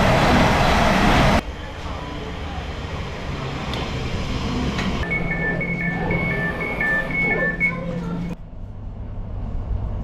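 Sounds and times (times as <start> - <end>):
low train hum: 0.0 - 10.0
train door warning beeps: 5.0 - 8.4.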